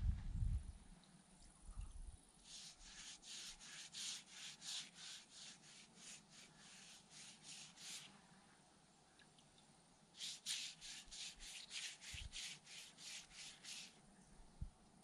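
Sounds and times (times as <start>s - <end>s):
rubbing strokes on log wall: 2.4s - 8.2s, 10.2s - 14.0s.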